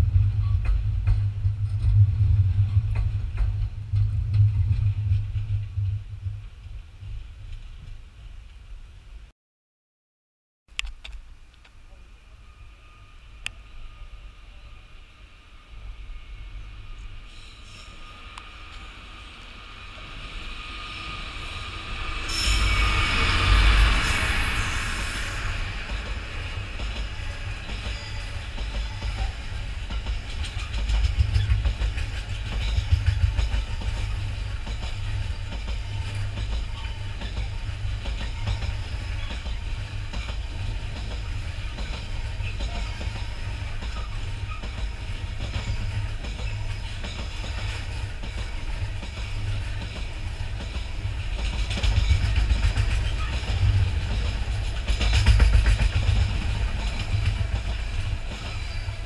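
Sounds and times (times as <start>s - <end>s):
train low rumble: 0.0s - 9.3s, 11.0s - 59.0s
train wheels clattering over joints: 0.3s - 6.0s, 25.8s - 59.0s.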